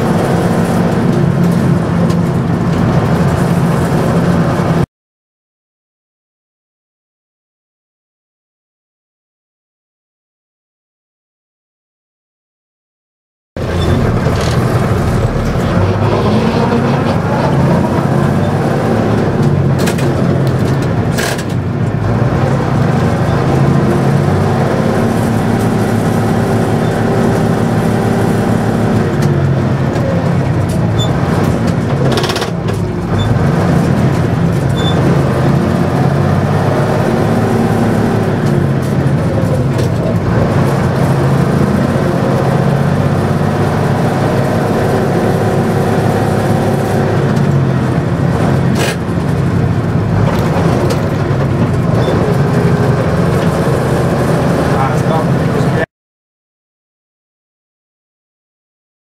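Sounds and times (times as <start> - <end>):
diesel truck engine running: 0.0 - 4.8, 13.6 - 55.9
gear change clunk: 13.6 - 22.0.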